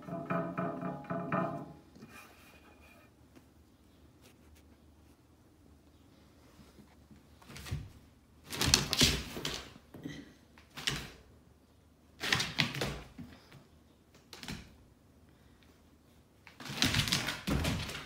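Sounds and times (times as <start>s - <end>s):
dog paws clattering on wood floor: 16.6s - 18.0s.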